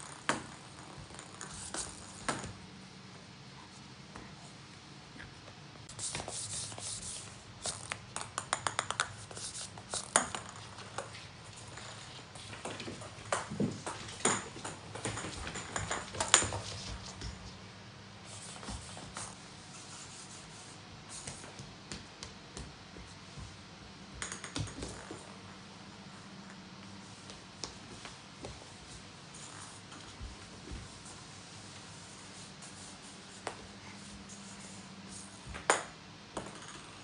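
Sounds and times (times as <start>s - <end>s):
toy balls bouncing on wooden floor: 7.6s - 12.0s, 12.6s - 17.4s, 24.1s - 25.4s, 35.5s - 37.0s.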